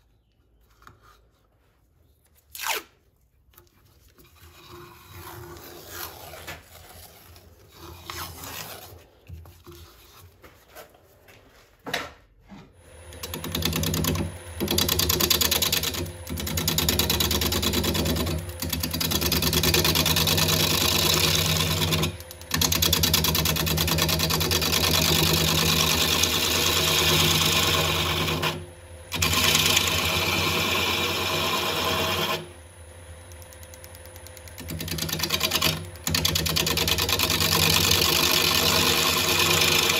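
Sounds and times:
rubbing and handling: 0.0s - 12.7s
lathe motor hum: 12.9s - 39.9s
wood lathe tool cutting hiss: 25.9s - 32.5s.

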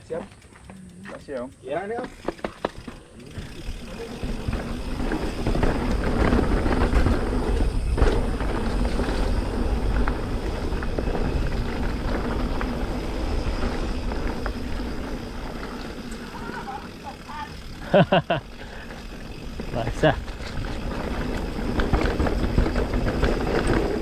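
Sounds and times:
bike rattles and clicks: 0.0s - 24.0s
tyre rolling noise: 2.2s - 17.0s, 18.7s - 24.0s
wind buffeting microphone: 3.4s - 16.4s, 19.0s - 24.0s.

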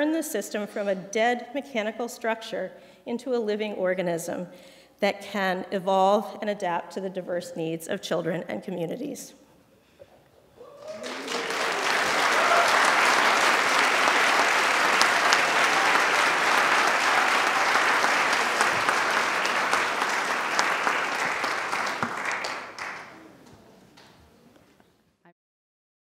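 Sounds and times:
audience applauding: 10.6s - 23.6s.

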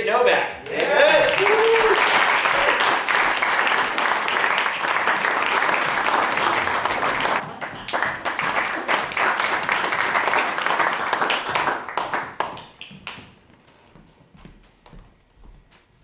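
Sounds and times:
audience applauding: 0.6s - 13.3s.

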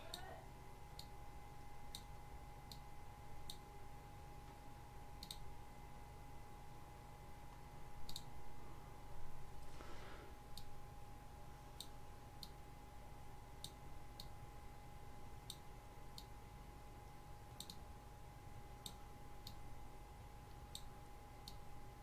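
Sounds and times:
faint steady whine: 0.0s - 22.0s
computer mouse clicking: 5.2s - 5.4s, 8.0s - 8.3s, 17.6s - 17.8s.

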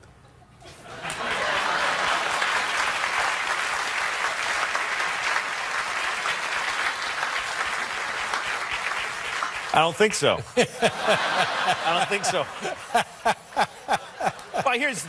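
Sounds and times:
audience applauding: 1.0s - 15.0s.

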